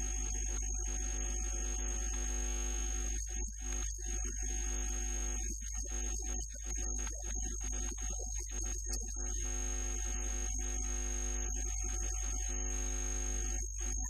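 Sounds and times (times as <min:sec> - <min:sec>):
electrical mains hum: 0:00.0 - 0:14.0.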